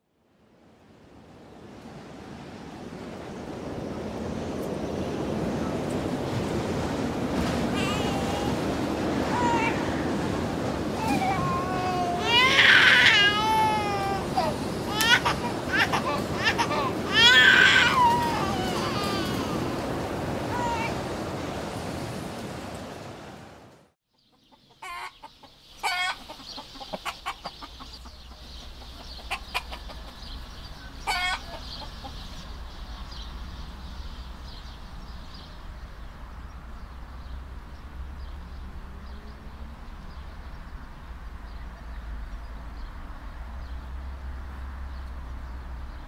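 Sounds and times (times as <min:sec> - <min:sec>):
chickens clucking: 0:13.4 - 0:19.9, 0:24.2 - 0:32.5
sharp chicken calls: 0:24.2 - 0:32.4.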